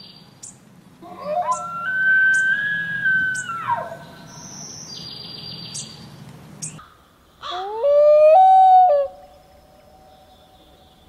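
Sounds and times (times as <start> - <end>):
loon wail: 1.0 - 4.0, 7.4 - 9.2.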